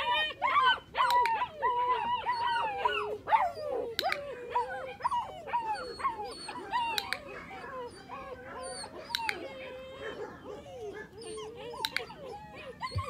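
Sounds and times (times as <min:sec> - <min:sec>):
puppies whining and yipping: 0:00.0 - 0:13.0
sharp clicks: 0:01.0 - 0:01.4, 0:03.9 - 0:04.3, 0:06.9 - 0:07.3, 0:11.8 - 0:12.2.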